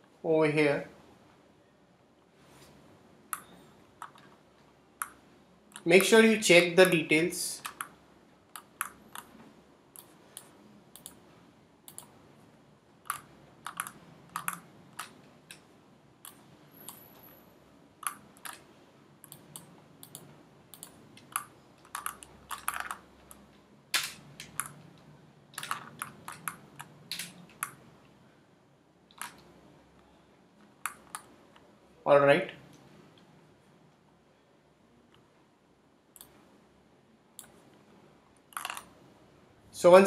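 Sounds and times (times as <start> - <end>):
faint low room hum: 0.0 - 40.0
mouse and keyboard clicking: 7.6 - 9.4, 13.0 - 17.0, 18.0 - 25.0, 25.6 - 27.8, 30.8 - 31.7.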